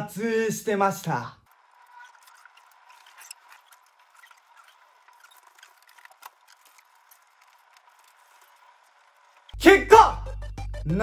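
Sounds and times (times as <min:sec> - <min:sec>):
tiny clicks and crackles: 0:01.4 - 0:09.6.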